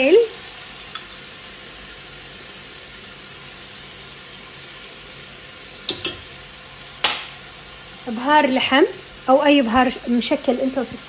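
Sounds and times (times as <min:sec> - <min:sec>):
meat sizzling in hot fat: 0:00.0 - 0:11.0.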